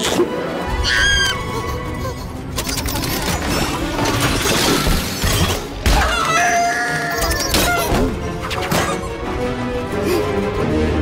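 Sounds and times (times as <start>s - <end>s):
crashing and shattering effects: 2.6s - 6.0s.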